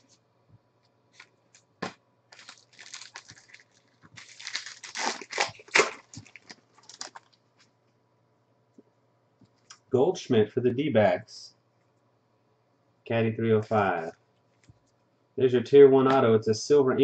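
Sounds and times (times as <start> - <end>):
plastic wrapper tearing and crinkling: 2.3 - 7.4.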